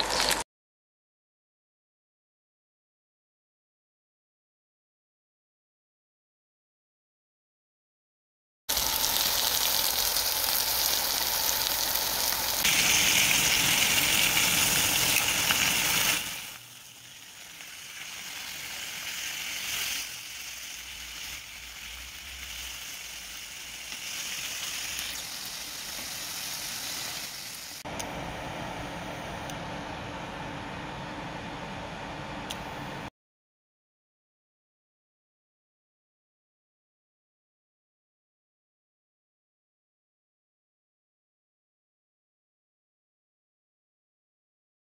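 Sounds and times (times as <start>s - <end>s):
pork chops sizzling in a pan: 0.0s - 0.4s, 8.7s - 27.8s.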